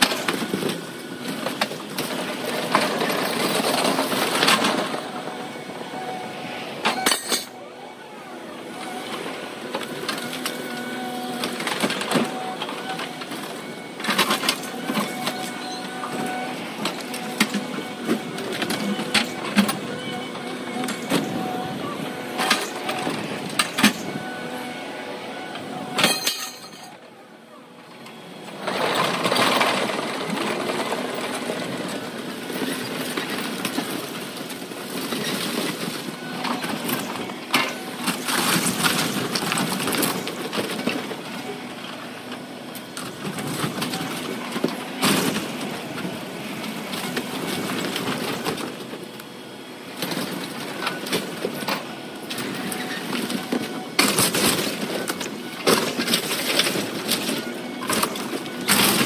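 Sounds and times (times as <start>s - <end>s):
excavator engine running: 0.0s - 59.0s.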